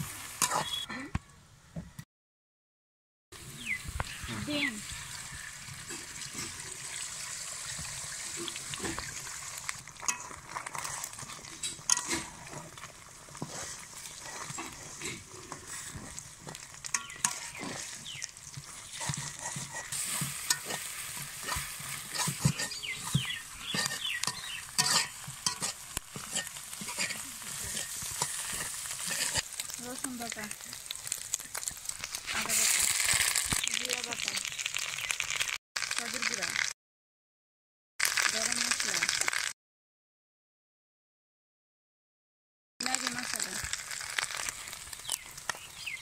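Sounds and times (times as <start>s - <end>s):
eggs sizzling in a wok: 0.0s - 0.9s, 3.4s - 36.8s, 38.0s - 39.6s, 42.8s - 46.0s
metal spatula scraping a pan: 0.4s - 0.8s, 8.2s - 29.7s.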